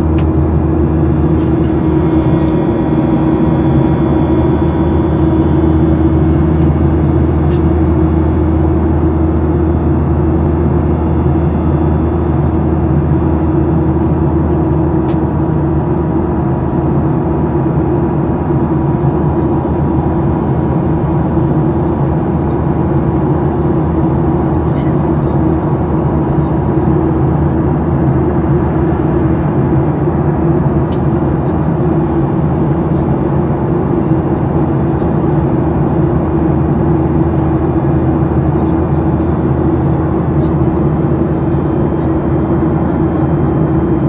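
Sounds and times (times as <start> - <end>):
airliner cabin drone: 0.0 - 44.0
thin steady whine: 0.0 - 44.0.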